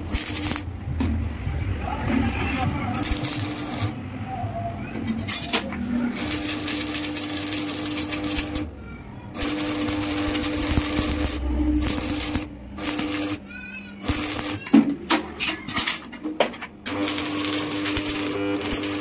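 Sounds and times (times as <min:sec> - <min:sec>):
welding arc crackling and sizzling: 0:00.0 - 0:00.8, 0:02.9 - 0:04.0, 0:05.3 - 0:08.7, 0:09.3 - 0:13.4, 0:14.0 - 0:14.7, 0:16.8 - 0:19.0.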